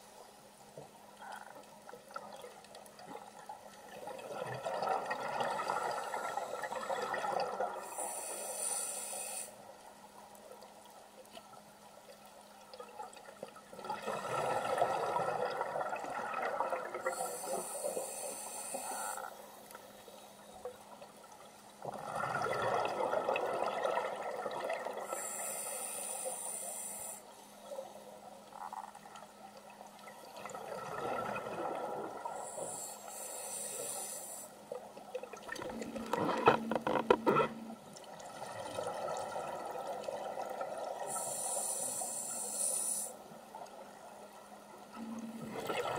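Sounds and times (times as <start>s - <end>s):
regulator hiss: 7.8s - 9.7s, 17.1s - 20.6s, 25.1s - 27.4s, 32.4s - 34.6s, 41.1s - 43.3s.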